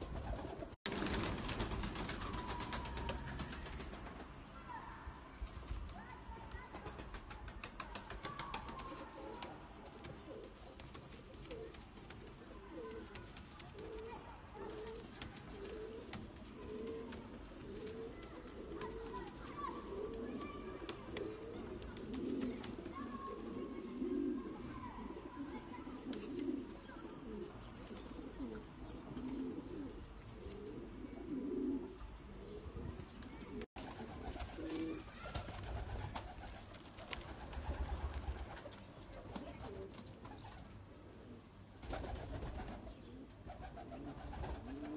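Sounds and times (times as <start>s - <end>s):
pigeons cooing: 7.7s - 44.9s.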